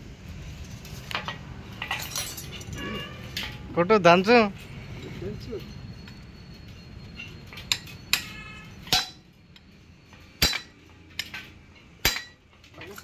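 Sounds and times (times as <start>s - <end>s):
hammer striking steel: 7.7s - 9.3s, 10.4s - 11.4s, 12.0s - 12.4s.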